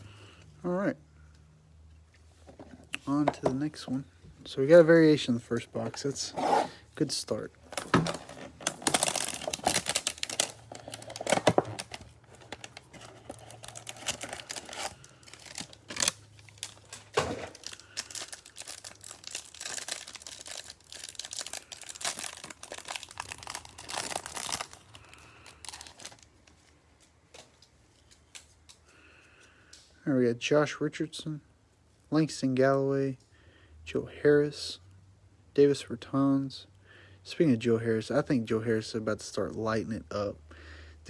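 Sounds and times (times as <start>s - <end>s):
plastic wrapper crinkling and tearing: 7.6s - 28.6s.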